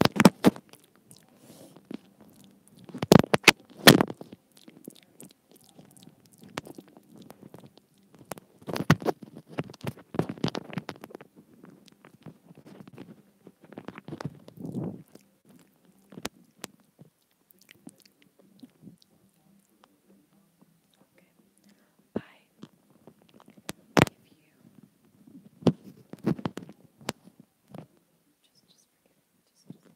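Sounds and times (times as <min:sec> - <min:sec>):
scratchy rubbing on microphone: 0:06.4 - 0:15.4, 0:22.8 - 0:27.9.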